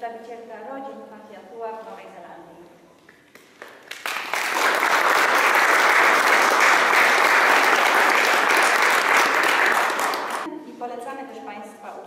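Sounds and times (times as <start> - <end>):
audience applauding: 3.6 - 10.5.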